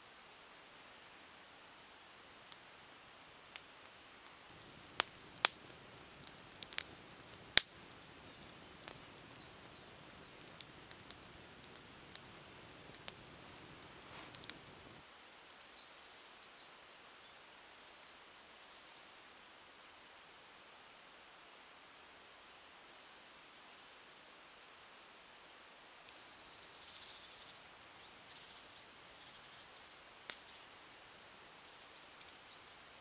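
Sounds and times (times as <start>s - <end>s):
campfire crackling and popping: 3.4s - 15.0s, 26.0s - 33.0s.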